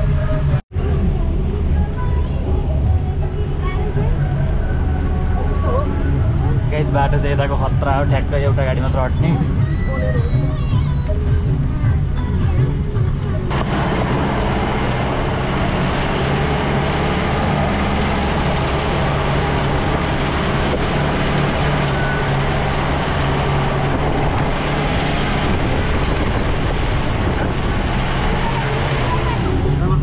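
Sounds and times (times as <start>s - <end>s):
engine drone: 0.0s - 30.0s
road and tyre noise: 0.0s - 30.0s.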